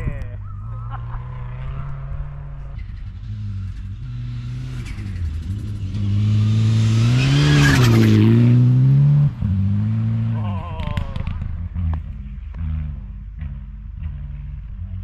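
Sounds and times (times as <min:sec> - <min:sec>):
car engine revving past: 0:00.6 - 0:14.6
snow spray and tyre noise: 0:00.8 - 0:11.5.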